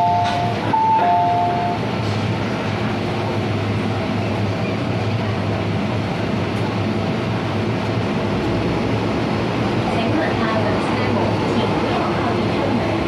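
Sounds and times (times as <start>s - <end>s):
train equipment humming: 0.0s - 13.0s.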